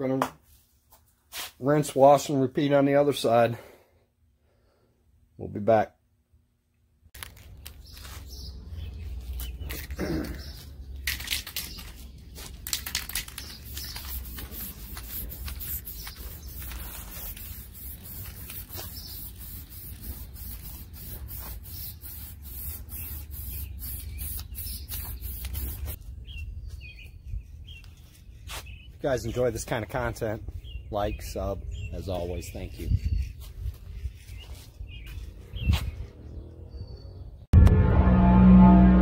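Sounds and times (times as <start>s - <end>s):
spray can hissing: 12.8s - 26.0s.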